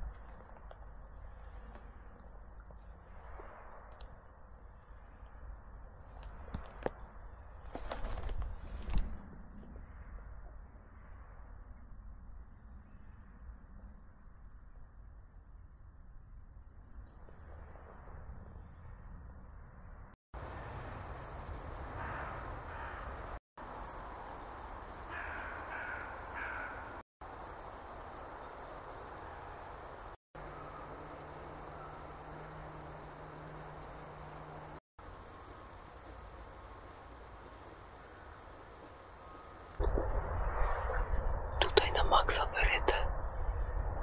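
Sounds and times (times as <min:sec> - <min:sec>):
crow cawing: 0:21.9 - 0:23.2, 0:25.0 - 0:27.0.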